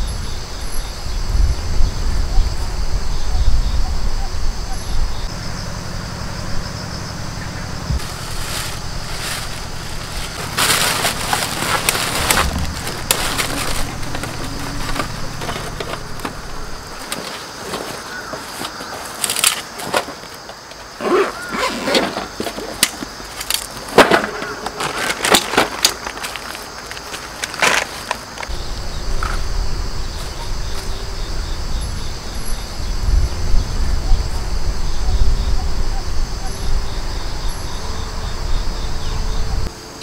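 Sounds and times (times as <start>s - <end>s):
low steady hum: 1.4s - 17.9s
footsteps crunching on gravel: 7.9s - 28.6s
metal tray clattering and scraping: 10.0s - 20.4s.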